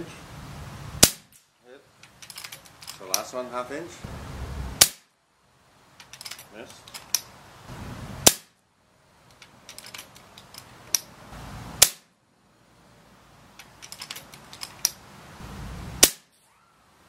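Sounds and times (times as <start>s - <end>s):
air rifle shot crack: 1.0s - 1.4s, 8.2s - 8.5s, 16.0s - 16.3s
rifle handling clicks: 9.3s - 11.1s, 13.6s - 15.0s.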